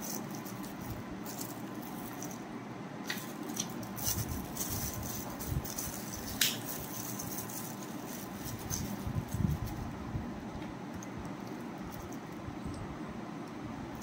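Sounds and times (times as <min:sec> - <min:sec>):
plastic packet crinkling: 0:00.0 - 0:02.4, 0:03.1 - 0:09.8.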